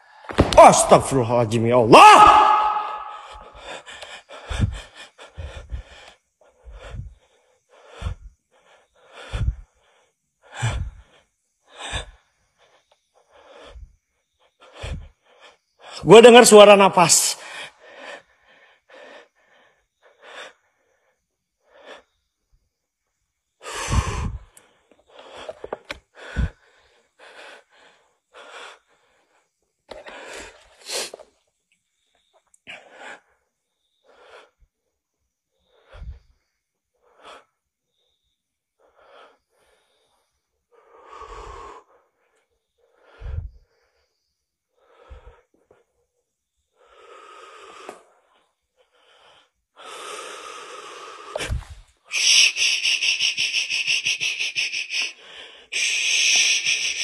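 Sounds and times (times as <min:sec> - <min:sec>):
person breathing heavily: 0:02.0 - 0:16.0, 0:17.4 - 0:22.4, 0:23.6 - 0:31.3, 0:35.3 - 0:36.4, 0:38.8 - 0:45.9, 0:46.6 - 0:57.0.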